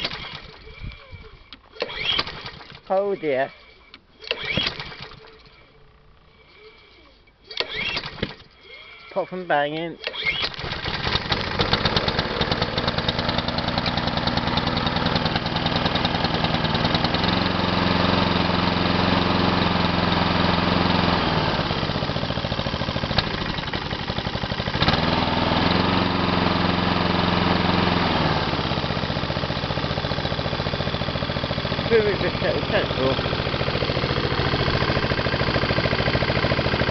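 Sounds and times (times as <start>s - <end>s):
lawn mower engine running unevenly: 0.0s - 3.5s, 10.2s - 36.9s.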